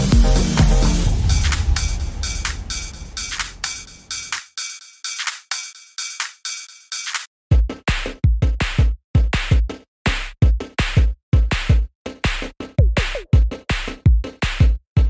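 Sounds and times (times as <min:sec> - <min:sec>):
light high percussion: 0:00.0 - 0:07.3
kick drums and hi-hats beat: 0:00.0 - 0:15.0.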